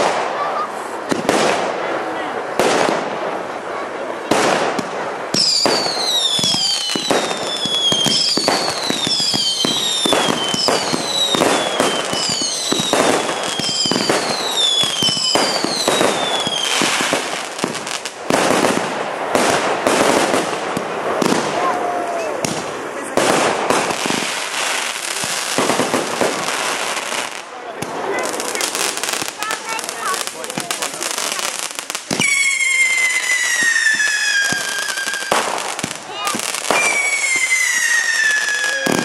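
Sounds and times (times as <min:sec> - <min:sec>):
firework bangs and crackles: 0:00.0 - 0:39.0
falling firework whistles: 0:05.4 - 0:17.2, 0:32.1 - 0:39.0.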